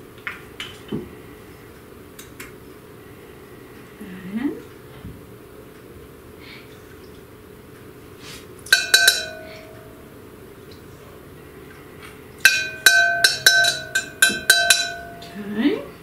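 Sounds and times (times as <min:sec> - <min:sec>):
metal spoon clinking on glass: 0:08.7 - 0:09.9, 0:12.4 - 0:15.4.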